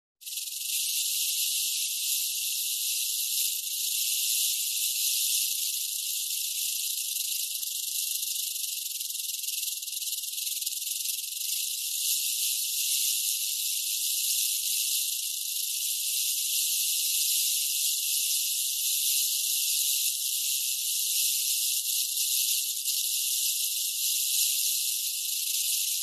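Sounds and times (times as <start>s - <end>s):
rattlesnake tail rattling: 0.2s - 26.0s.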